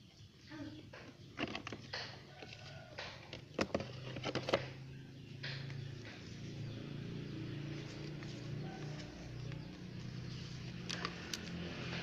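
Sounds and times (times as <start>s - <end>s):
plastic lid clicks and knocks: 2.9s - 4.8s.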